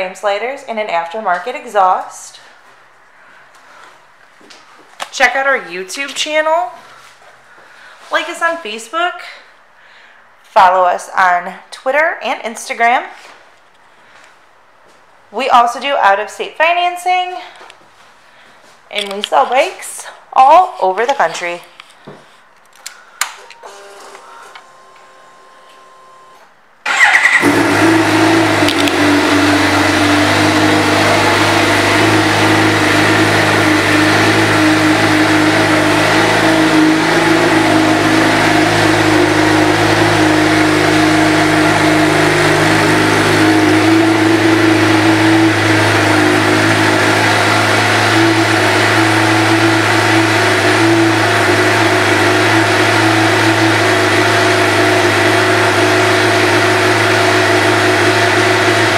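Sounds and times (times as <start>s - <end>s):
motorcycle engine starting and idling: 26.3s - 58.9s.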